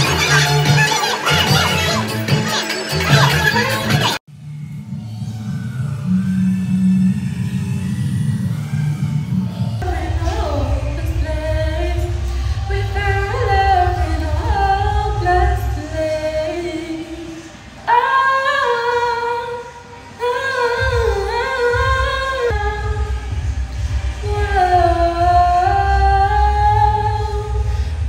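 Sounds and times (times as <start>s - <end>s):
pulsing bass beat: 0.0s - 16.0s, 20.8s - 28.0s
woman singing: 9.8s - 23.3s, 24.2s - 27.7s.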